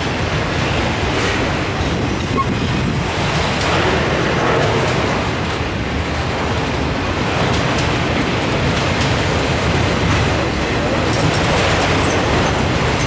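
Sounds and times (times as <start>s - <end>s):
train wheels rumbling on rails: 0.0s - 13.0s.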